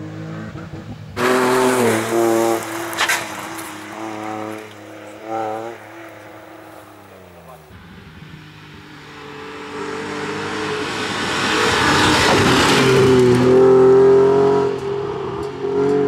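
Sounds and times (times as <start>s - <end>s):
rally car engine revving high: 0.0s - 16.0s
tyre and road noise: 0.0s - 16.0s.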